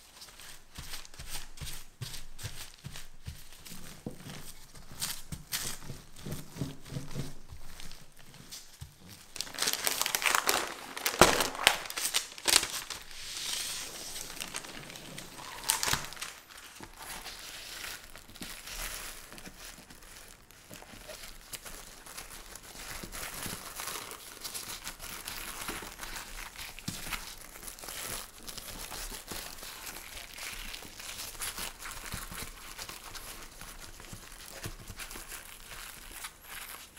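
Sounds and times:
plastic film and paper crinkling: 0.0s - 36.9s
rolling pin rolling over dough: 0.4s - 9.4s.

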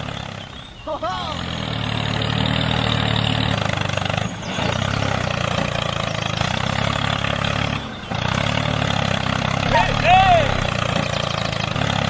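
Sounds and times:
tractor engine running: 0.0s - 12.0s.

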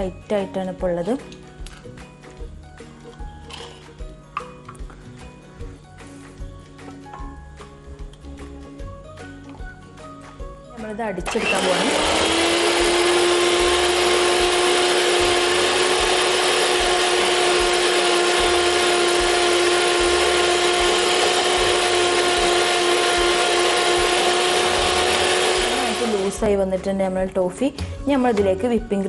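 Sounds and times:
electric hand mixer whining: 11.2s - 26.5s.

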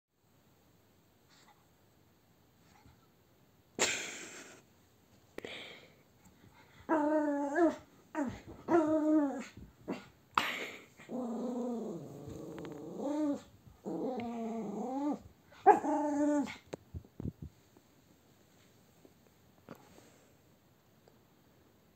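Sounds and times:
small dog growling in play: 6.8s - 10.2s, 10.9s - 16.7s.

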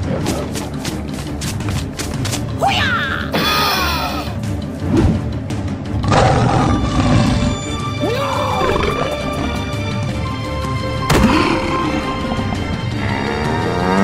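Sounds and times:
background music: 0.0s - 14.0s
animated lion roaring: 6.0s - 7.5s, 13.0s - 14.0s.

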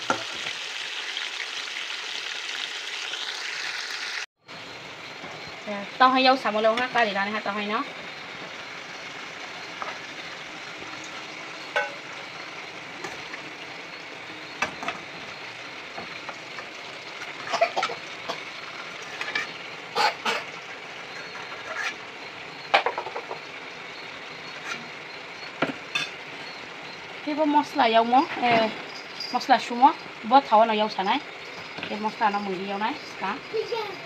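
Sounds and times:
food sizzling in a wok: 0.0s - 34.0s.

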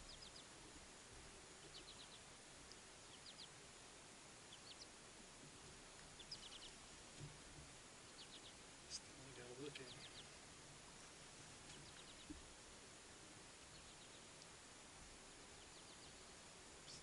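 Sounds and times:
faint bird chirps: 0.0s - 0.6s, 1.5s - 3.7s, 4.4s - 5.0s, 6.1s - 6.9s, 8.0s - 12.5s, 13.6s - 14.5s, 15.4s - 17.0s
low steady hiss: 0.0s - 17.0s.

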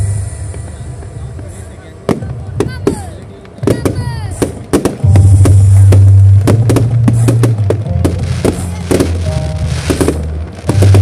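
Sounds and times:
fireworks popping and banging: 0.3s - 11.0s
loud music with heavy bass: 5.0s - 11.0s.

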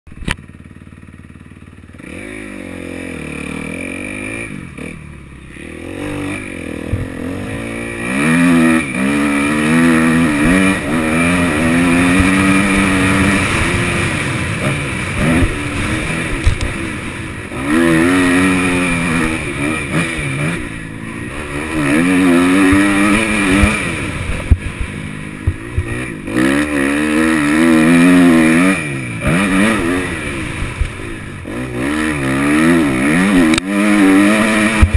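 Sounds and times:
motocross engine revving: 0.2s - 34.9s.

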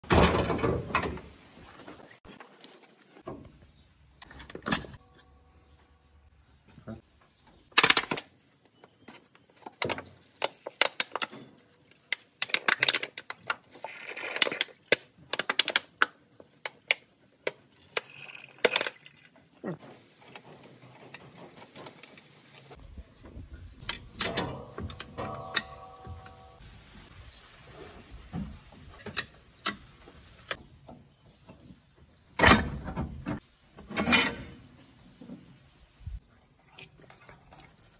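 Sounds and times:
hand tools clicking and clattering: 23.8s - 26.6s.

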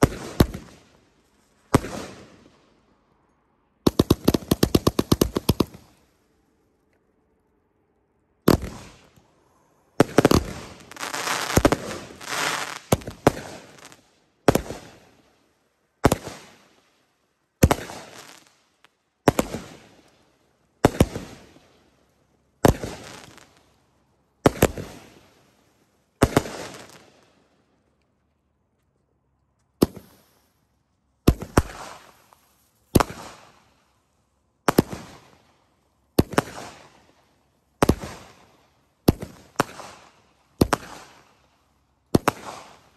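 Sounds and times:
fireworks bangs: 1.7s - 2.6s, 3.8s - 6.0s, 8.4s - 9.3s, 10.0s - 15.2s, 17.6s - 18.5s, 19.2s - 20.0s, 22.6s - 23.6s
fireworks crackling: 3.9s - 6.0s, 8.5s - 9.3s, 10.0s - 15.1s, 17.6s - 18.6s, 19.3s - 20.1s, 20.8s - 21.6s, 22.6s - 23.7s, 26.2s - 27.3s, 31.3s - 33.8s, 34.6s - 35.5s, 42.1s - 42.9s.

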